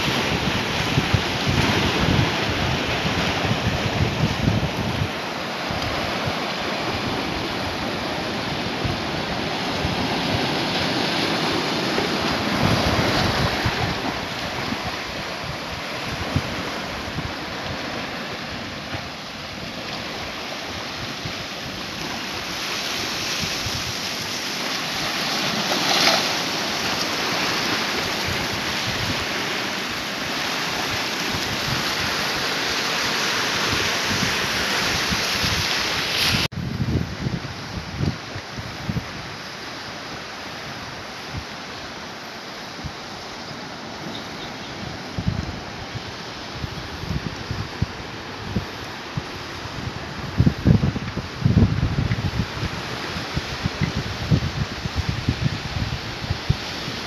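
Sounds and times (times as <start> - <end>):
wind buffeting microphone: 0.0 - 32.6, 33.4 - 39.4, 44.7 - 57.0
waves breaking on rocks: 0.0 - 36.5.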